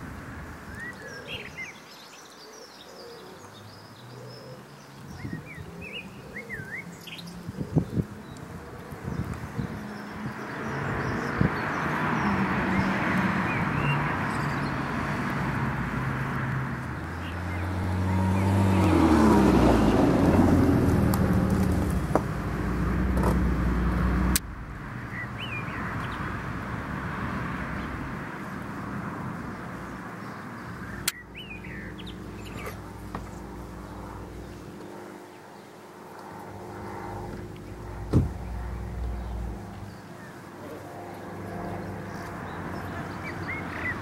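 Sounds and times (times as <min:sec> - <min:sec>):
vehicle engine and tyre noise: 0:00.0 - 0:02.0, 0:03.2 - 0:44.0
bird chirps: 0:25.0 - 0:26.3, 0:30.2 - 0:33.4.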